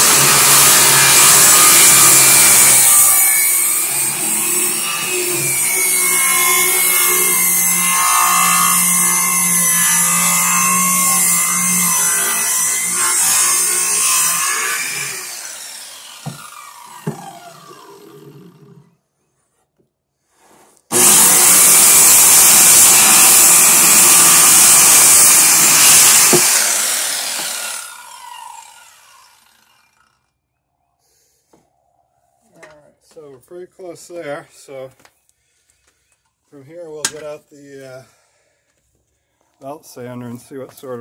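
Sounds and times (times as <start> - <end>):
saw blade winding down: 0.0 - 18.9, 20.9 - 30.3
circular saw cutting wood: 0.0 - 19.0, 20.5 - 30.4.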